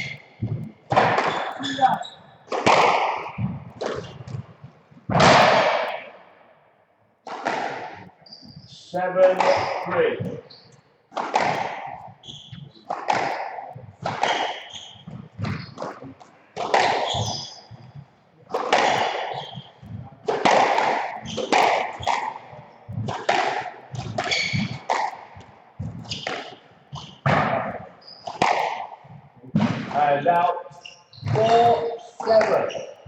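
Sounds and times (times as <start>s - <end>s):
squash ball smacked by rackets: 0.0s - 4.5s, 5.1s - 6.2s, 7.3s - 8.1s, 11.1s - 30.0s.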